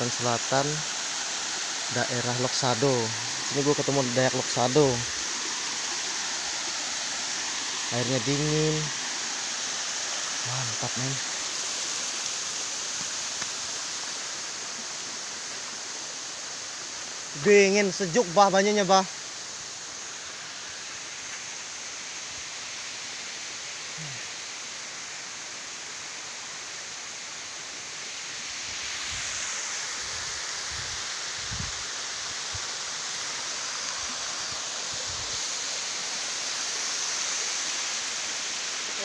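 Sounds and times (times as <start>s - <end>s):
waterfall rushing: 0.0s - 39.0s.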